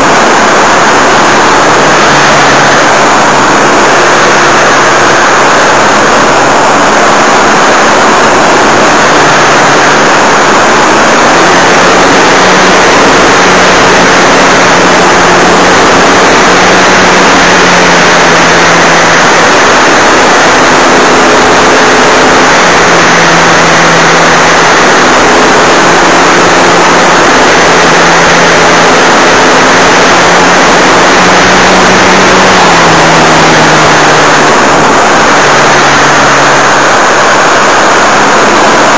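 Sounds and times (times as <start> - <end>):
model airplane motor drone: 0.0 - 38.9.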